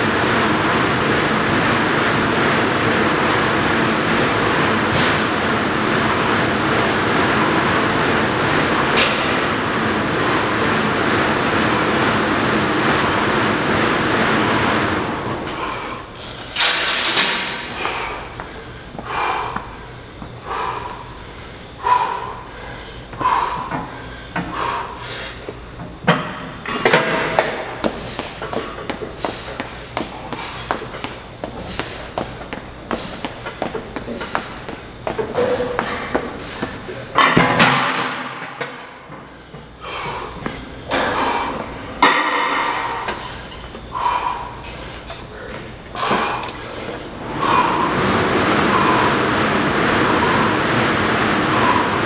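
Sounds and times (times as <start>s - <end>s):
man breathing hard: 17.6s - 25.6s, 38.7s - 52.0s.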